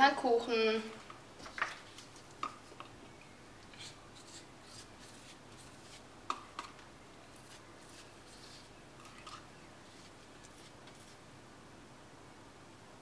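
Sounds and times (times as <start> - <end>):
soft brushing strokes: 3.7 - 11.3.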